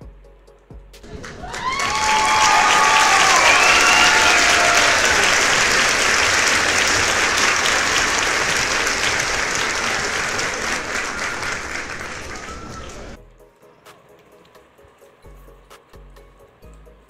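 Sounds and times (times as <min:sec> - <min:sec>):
crowd applause: 0:01.0 - 0:13.2.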